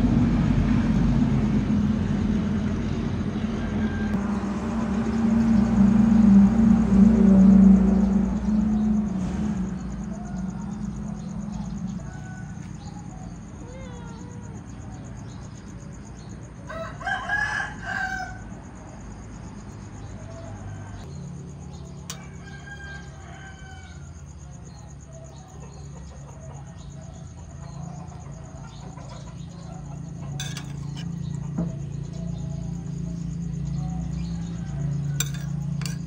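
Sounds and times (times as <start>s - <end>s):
steady low hum: 0.0s - 16.7s
rooster crowing: 3.4s - 13.4s, 16.5s - 18.7s, 20.0s - 21.1s, 22.1s - 36.0s.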